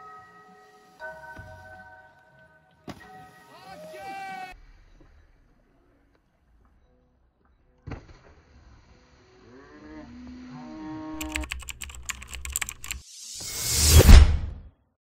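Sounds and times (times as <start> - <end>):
whoosh: 13.0 - 14.7.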